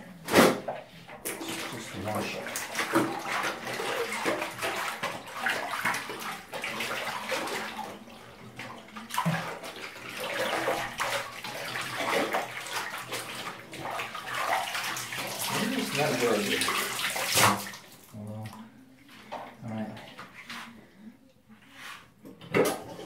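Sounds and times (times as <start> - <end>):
bathwater sloshing and splashing: 0.0 - 23.0
hands swishing bag in water: 1.2 - 8.1.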